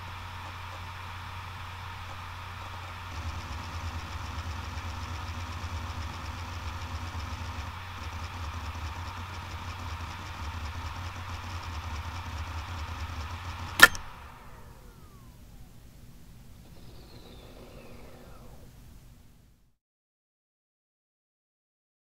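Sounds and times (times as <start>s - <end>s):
hard drive heads ticking: 0.0s - 18.8s
hard drive spindle hum: 0.0s - 19.7s
sharp loud click: 13.7s - 14.2s.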